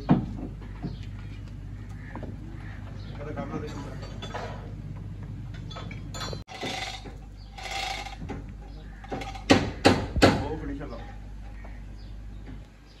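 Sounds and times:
metal clinks and scrapes: 0:05.7 - 0:08.2, 0:09.1 - 0:09.5.

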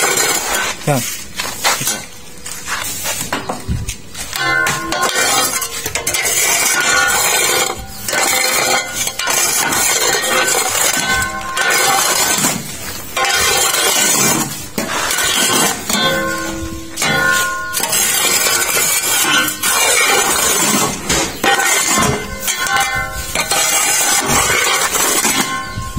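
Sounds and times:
metal bar scraping concrete mix: 0:00.0 - 0:25.9.

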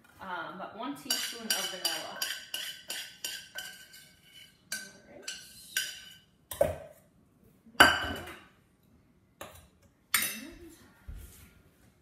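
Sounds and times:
utensil tapping metal saucepan: 0:01.0 - 0:04.1.

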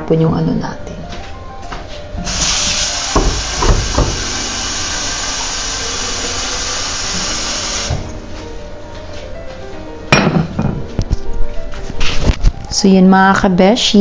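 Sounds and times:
tap running into container: 0:03.1 - 0:05.6.

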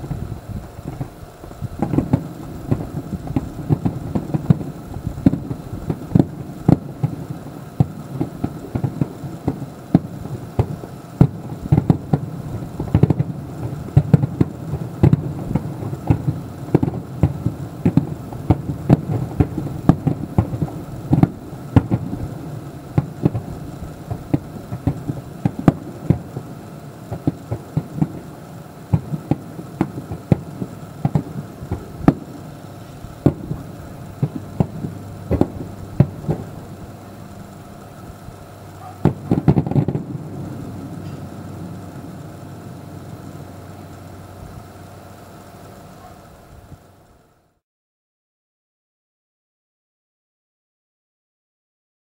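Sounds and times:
fireworks bursting: 0:00.0 - 0:47.6
low rumble: 0:31.2 - 0:45.7.

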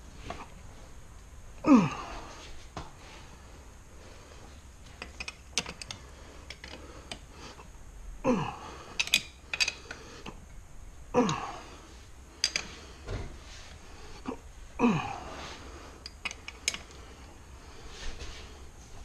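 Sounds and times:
person sighing: 0:01.6 - 0:02.5, 0:08.2 - 0:09.0, 0:11.1 - 0:11.9, 0:14.2 - 0:15.9
tools clinking on metal parts: 0:05.0 - 0:07.2, 0:09.0 - 0:10.0, 0:12.4 - 0:12.8, 0:16.0 - 0:17.0.

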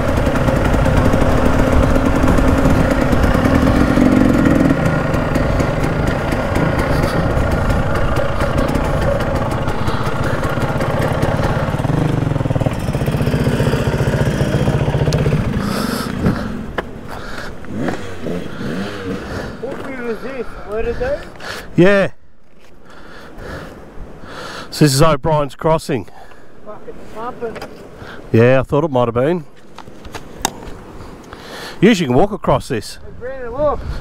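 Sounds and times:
dirt bike engine running: 0:00.0 - 0:20.2.

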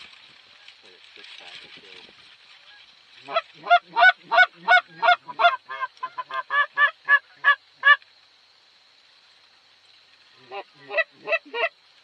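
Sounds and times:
goose honking: 0:02.6 - 0:08.0, 0:10.5 - 0:11.7.

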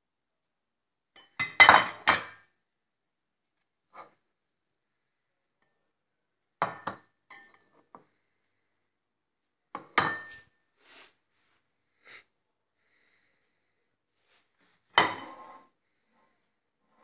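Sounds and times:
dishes and glasses clinking: 0:01.2 - 0:02.5, 0:06.6 - 0:07.8, 0:09.8 - 0:10.5, 0:15.0 - 0:15.7.

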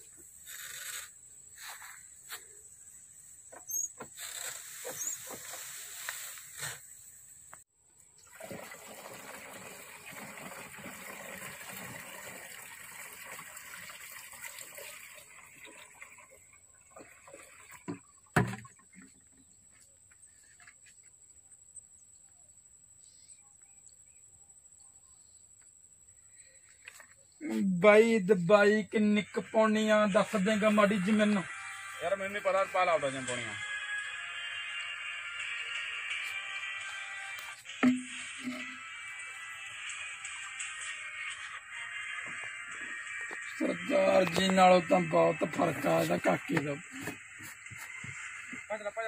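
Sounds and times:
liquid pouring into a tank: 0:08.2 - 0:19.0.

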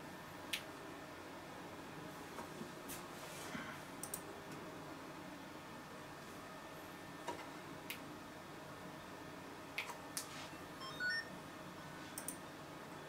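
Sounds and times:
short electronic beeps: 0:10.8 - 0:11.3.

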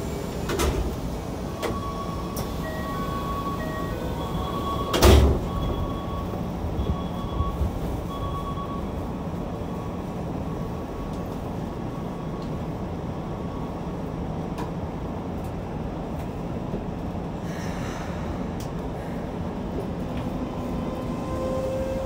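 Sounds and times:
train equipment hum: 0:00.0 - 0:22.0
high beeps: 0:01.6 - 0:08.9.

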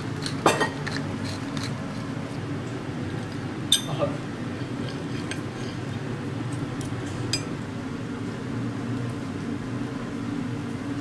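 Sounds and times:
low room hum: 0:00.0 - 0:11.0
knife and fork scraping a plate: 0:04.6 - 0:06.0.

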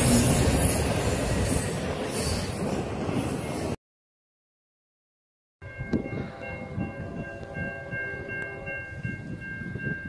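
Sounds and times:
train rumbling past: 0:00.0 - 0:03.8, 0:05.6 - 0:10.0
locomotive horn chord: 0:06.1 - 0:09.0.

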